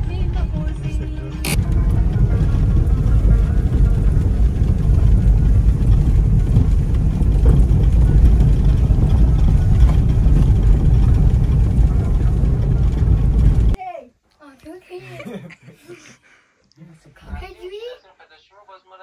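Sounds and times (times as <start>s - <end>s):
car rumbling on dirt road: 0.0s - 13.8s.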